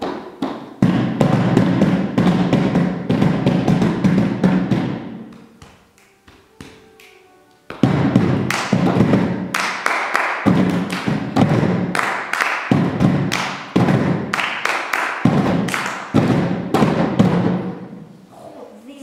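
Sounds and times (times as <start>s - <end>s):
hands drumming on plastic boxes: 0.0s - 6.9s, 7.7s - 17.8s
hand claps: 3.4s - 17.5s.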